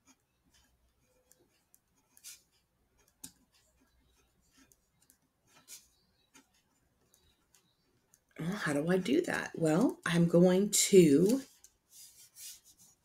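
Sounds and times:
pen scratching on paper: 0:00.0 - 0:08.4, 0:11.2 - 0:13.0.

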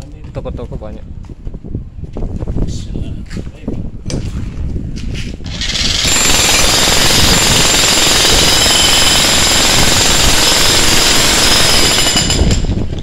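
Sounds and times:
demolition hammer on concrete: 0:05.4 - 0:13.0.

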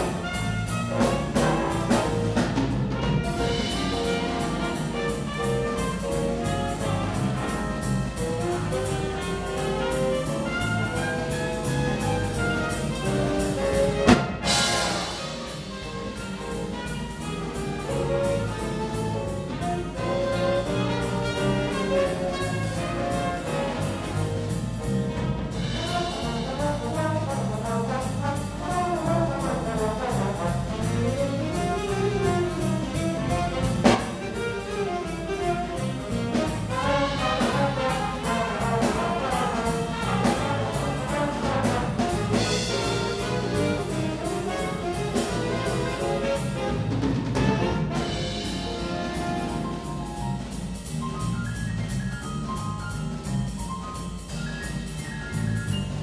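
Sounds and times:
jazz big band playing: 0:00.0 - 0:56.0
band accent hit: 0:13.7 - 0:16.2.

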